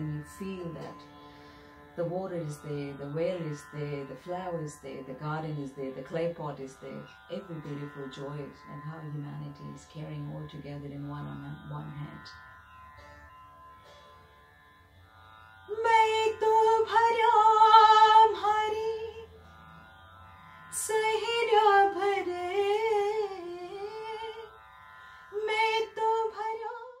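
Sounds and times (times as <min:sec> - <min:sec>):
sitar drone: 0:00.0 - 0:27.0
woman singing folk song: 0:15.7 - 0:19.3, 0:20.8 - 0:24.5, 0:25.3 - 0:27.0.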